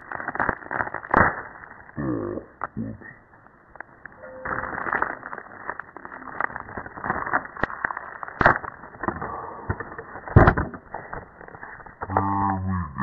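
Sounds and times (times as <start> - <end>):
plastic case crackling and clicking: 4.8 - 12.2.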